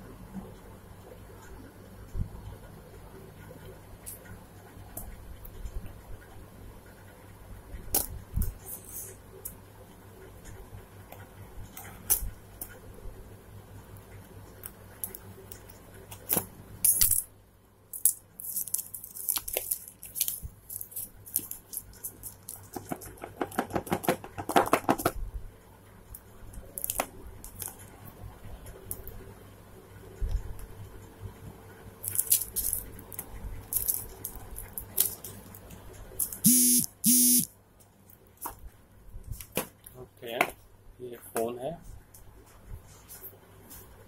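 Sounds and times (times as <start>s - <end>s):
plastic wrap crackling: 18.0s - 25.1s, 32.0s - 36.4s.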